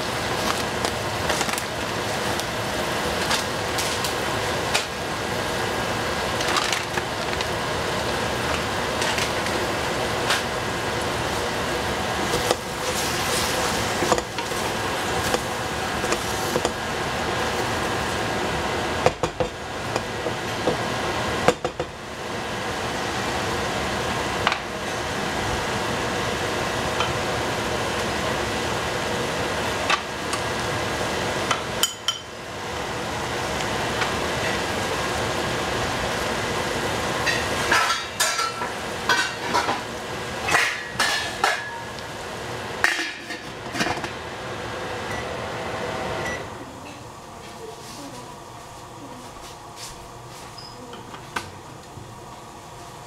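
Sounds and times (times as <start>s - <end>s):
kitchen utensils clinking: 37.2s - 39.8s, 40.5s - 41.9s.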